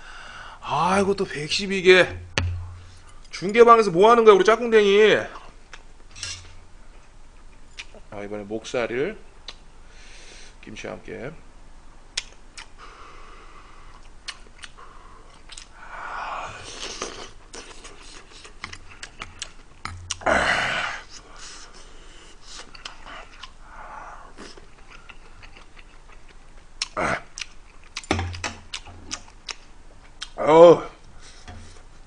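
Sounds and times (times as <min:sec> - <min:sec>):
wet mouth clicks: 0:12.2 - 0:12.8, 0:13.9 - 0:15.7, 0:16.7 - 0:20.3, 0:22.5 - 0:23.6
breathy mouth sounds: 0:12.6 - 0:25.6
person chewing food: 0:13.9 - 0:15.8, 0:16.6 - 0:20.3, 0:22.4 - 0:23.6, 0:24.2 - 0:30.4.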